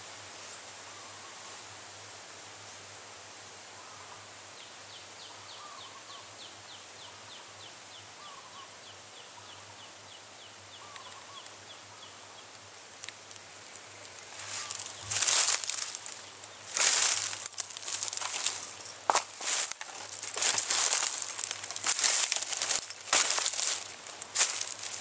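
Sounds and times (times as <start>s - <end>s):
steady hiss: 0.0s - 25.0s
dry leaves crunching: 13.0s - 25.0s.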